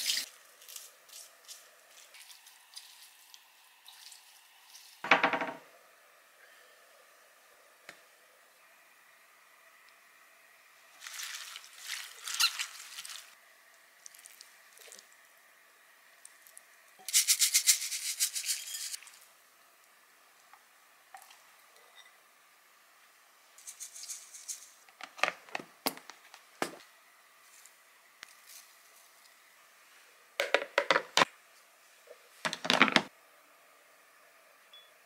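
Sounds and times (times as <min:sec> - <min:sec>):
wet crackly rustling of food: 0:00.0 - 0:05.0, 0:10.9 - 0:15.2.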